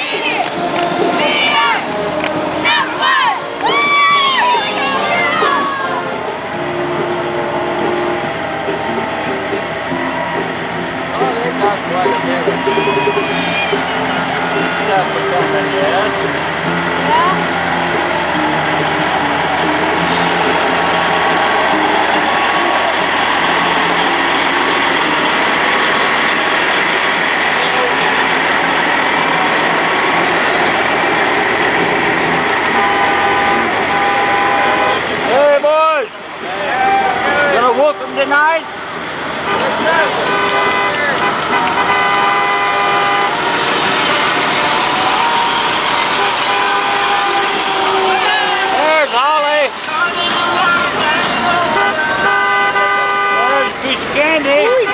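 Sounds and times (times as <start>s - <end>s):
diesel truck engine running: 4.4s - 54.9s
vehicle horns blasting: 11.8s - 35.4s, 39.3s - 54.9s.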